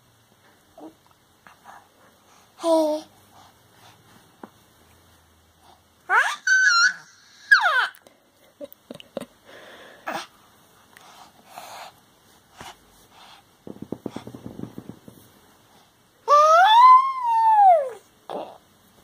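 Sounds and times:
baby squealing: 6.1s - 8.0s
baby grunting: 18.3s - 18.6s.

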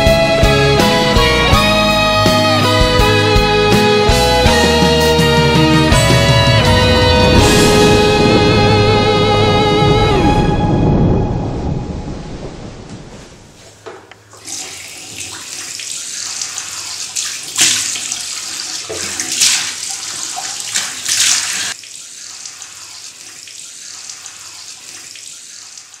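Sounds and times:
tap running into sink: 13.8s - 21.8s
water splashed on face: 14.4s - 26.0s.

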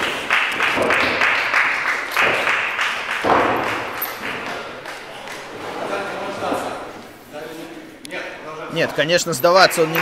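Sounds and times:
audience applauding: 0.0s - 5.5s, 9.5s - 10.0s.

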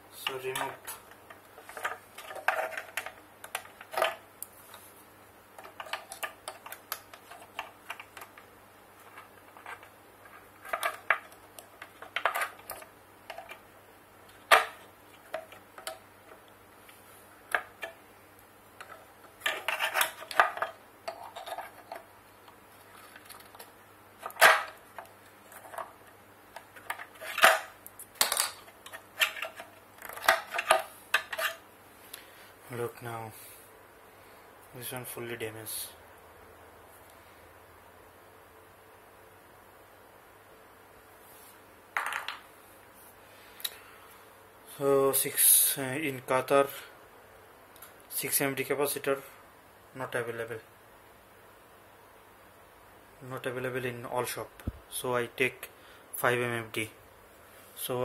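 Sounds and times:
plastic and metal parts clattering: 0.2s - 4.2s, 5.6s - 13.6s, 18.8s - 22.1s, 22.8s - 31.6s.

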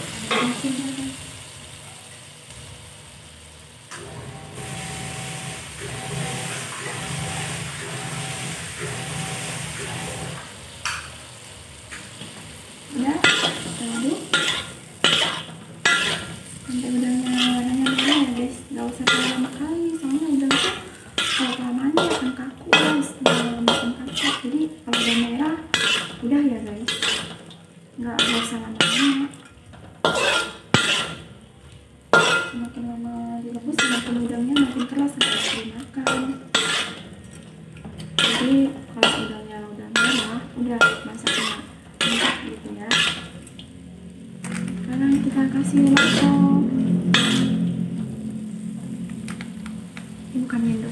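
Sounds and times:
oil sizzling: 0.0s - 50.9s
metal spatula scraping a wok: 12.9s - 27.5s, 28.1s - 31.3s, 32.1s - 32.7s, 33.6s - 43.6s, 44.4s - 49.4s
wavering low tone: 44.4s - 50.9s.

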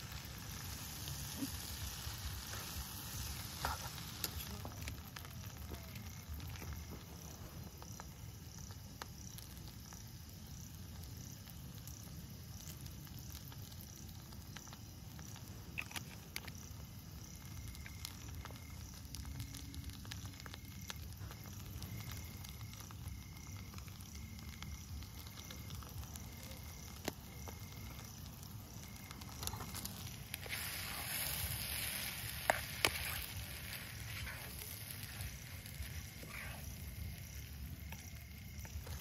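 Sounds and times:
food sizzling in a pan: 0.0s - 39.0s
small crackles: 0.0s - 39.0s
louder hiss: 29.5s - 37.8s.

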